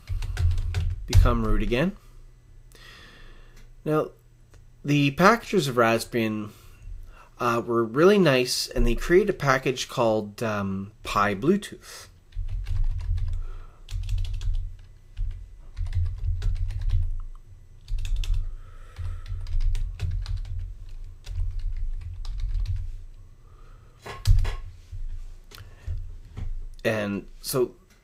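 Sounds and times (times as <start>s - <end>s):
typing on computer keyboard: 0.0s - 1.5s, 12.3s - 18.4s, 19.0s - 22.8s.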